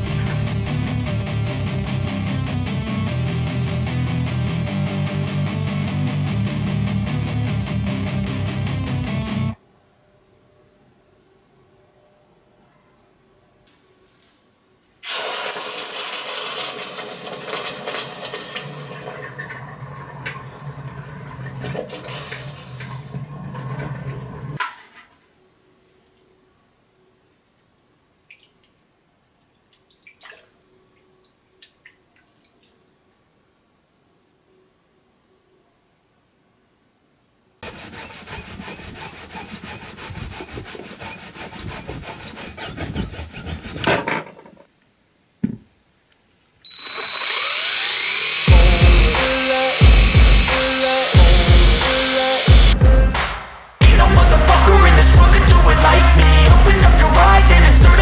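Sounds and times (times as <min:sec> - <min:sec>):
wire brush scrubbing metal: 0:37.6 - 0:43.9
rotary tool motor starting: 0:46.7 - 0:52.8
steady low hum: 0:48.4 - 0:50.6.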